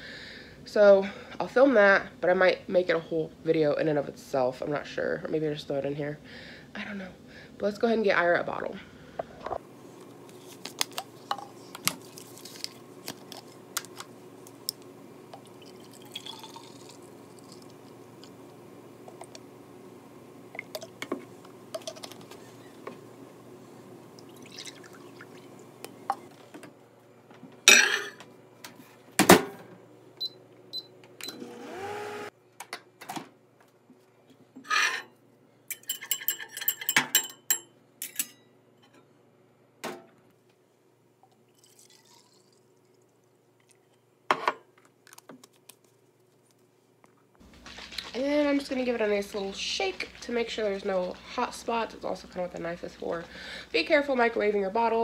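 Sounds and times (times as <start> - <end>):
liquid pouring: 15.3 - 18.3, 24.2 - 25.7, 41.4 - 43.8.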